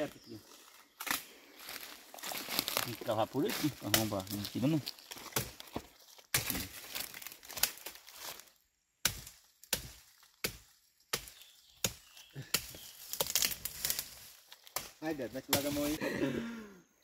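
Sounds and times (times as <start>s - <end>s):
digging tool chopping into ground: 5.2s - 6.8s, 9.0s - 14.1s.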